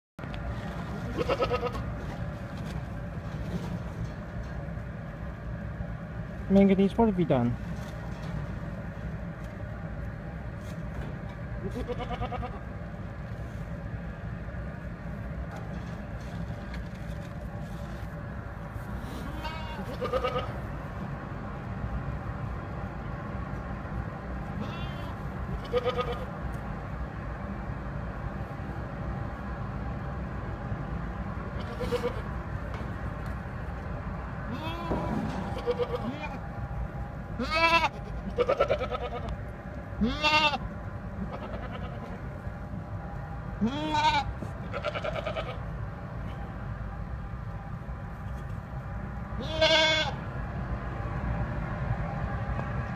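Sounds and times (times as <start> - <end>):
steady low hum: 0.2 - 52.9
goat bleating: 1.0 - 1.9, 11.6 - 12.7, 19.1 - 20.6, 24.6 - 26.3, 31.6 - 32.4, 34.5 - 36.4, 37.4 - 39.4, 40.0 - 42.3, 43.6 - 45.7, 49.4 - 50.2.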